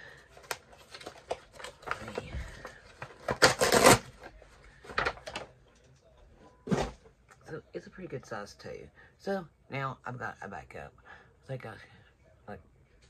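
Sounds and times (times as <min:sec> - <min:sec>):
packaging clicks and rustles: 0:00.2 - 0:05.9
wrapping crinkling or tearing: 0:03.2 - 0:04.1.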